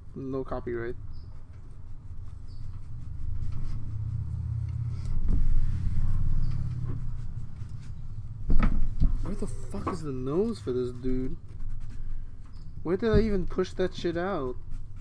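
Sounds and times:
steady low rumble: 0:02.0 - 0:11.1.

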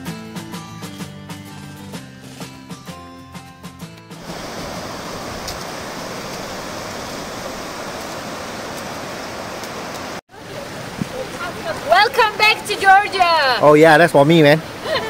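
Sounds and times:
fast-moving water rushing: 0:04.2 - 0:15.0.

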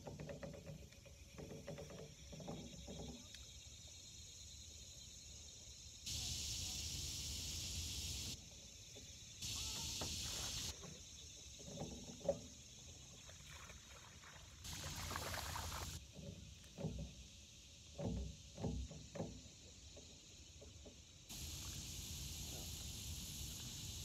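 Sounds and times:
fish splashing and knocking: 0:00.0 - 0:03.3, 0:09.8 - 0:17.2, 0:18.0 - 0:21.8
steady high hiss: 0:03.6 - 0:11.3, 0:14.6 - 0:16.0, 0:17.1 - 0:24.0.

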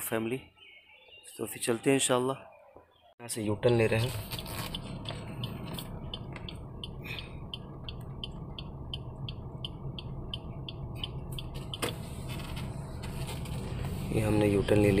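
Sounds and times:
car engine and road hum: 0:03.4 - 0:15.0
turn signal ticking: 0:03.5 - 0:15.0.

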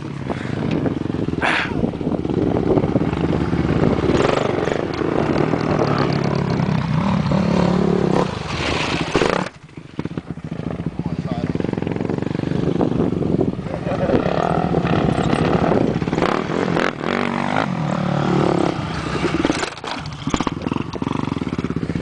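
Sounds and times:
quad bike engine revving: 0:00.0 - 0:22.0
rough noise: 0:01.4 - 0:13.2.

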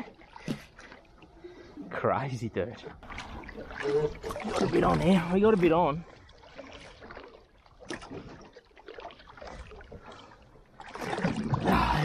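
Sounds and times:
water lapping against boat: 0:00.0 - 0:12.0
soft splashes: 0:02.7 - 0:12.0.

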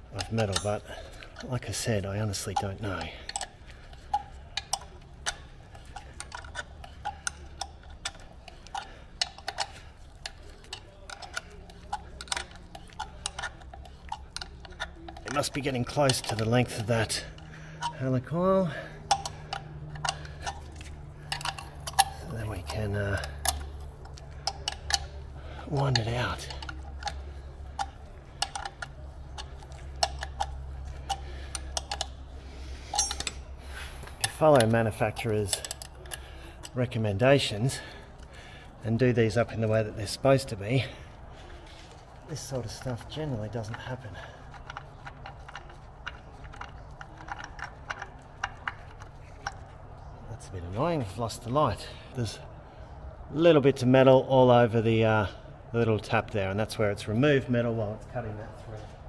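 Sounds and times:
hand ratchet clicking: 0:00.0 - 0:38.6, 0:42.3 - 0:49.8
steady low hum: 0:00.0 - 0:59.0.

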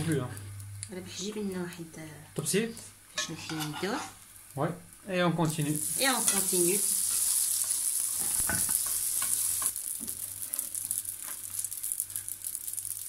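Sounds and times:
dough frying in hot oil: 0:03.1 - 0:13.0.

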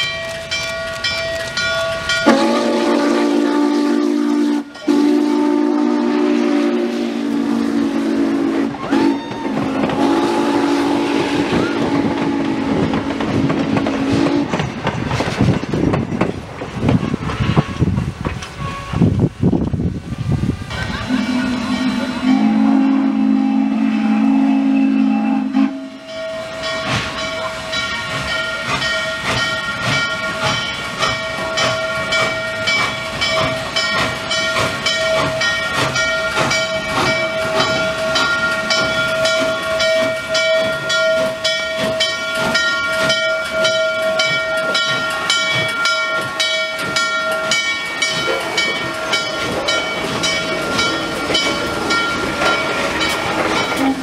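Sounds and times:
locomotive bell ringing: 0:00.0 - 0:06.5, 0:20.7 - 0:54.0
steam locomotive rolling past: 0:00.0 - 0:54.0
steam hissing: 0:01.4 - 0:54.0
steam whistle chord: 0:02.1 - 0:12.9, 0:20.9 - 0:29.4, 0:53.6 - 0:54.0.

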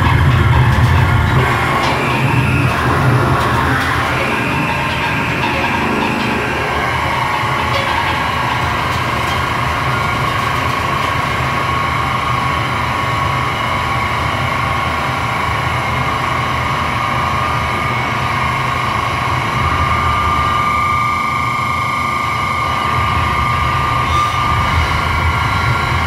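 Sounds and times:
harsh noise music: 0:00.0 - 0:12.0
steady high whine: 0:00.0 - 0:26.0.

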